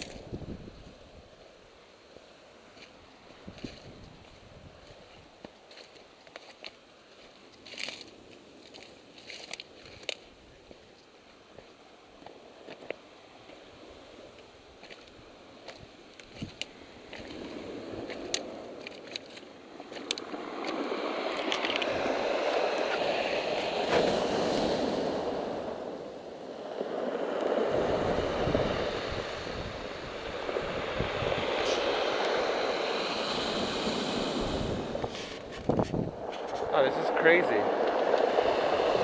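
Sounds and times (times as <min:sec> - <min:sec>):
wind rumble on microphone: 0:00.0 - 0:01.4, 0:03.3 - 0:05.4, 0:13.9 - 0:39.0
surf washing onto stony beach: 0:11.3 - 0:39.0.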